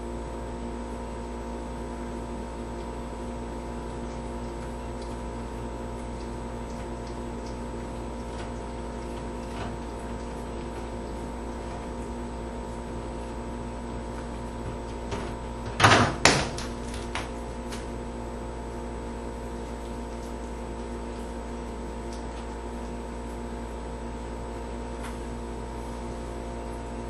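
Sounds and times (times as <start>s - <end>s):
steady low hum: 0.0s - 27.0s
refrigerator door knocks: 14.7s - 17.4s.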